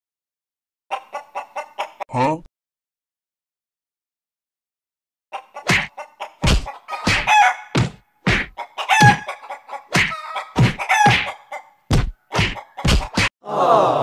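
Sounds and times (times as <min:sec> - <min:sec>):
chickens squawking and clucking: 0:00.9 - 0:02.1, 0:05.3 - 0:13.3
sharp thuds: 0:05.7 - 0:09.2, 0:09.9 - 0:11.3, 0:11.9 - 0:13.3.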